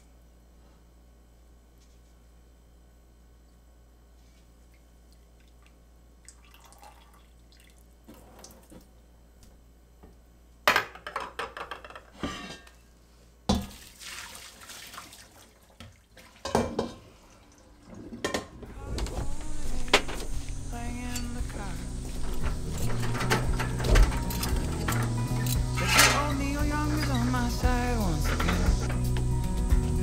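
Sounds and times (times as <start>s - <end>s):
dishes and pans clattering: 10.7s - 12.8s, 16.4s - 17.1s, 22.2s - 27.4s, 28.2s - 29.1s
tap water running: 17.6s - 30.0s.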